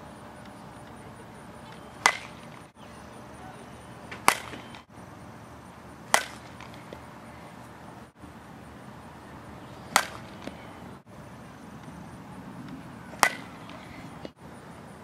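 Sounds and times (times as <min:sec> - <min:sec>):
bat striking softball: 0:01.7 - 0:02.6, 0:04.1 - 0:04.9, 0:06.0 - 0:07.1, 0:09.8 - 0:10.6, 0:12.6 - 0:14.4.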